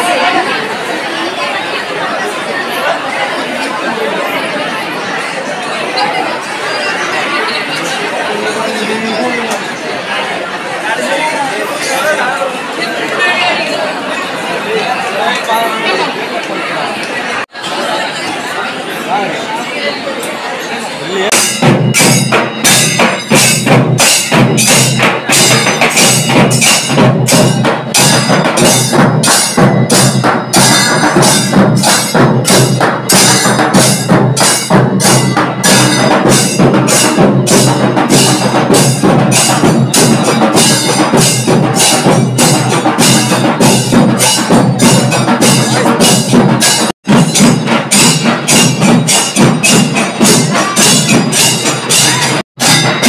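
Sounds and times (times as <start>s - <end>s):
temple percussion music: 21.2s - 53.0s
sharp clacking drum strikes: 21.3s - 53.0s.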